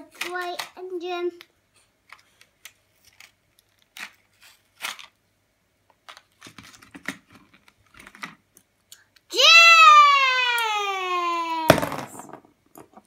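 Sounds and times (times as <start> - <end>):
plastic packaging clicks and rattles: 5.9 - 8.7.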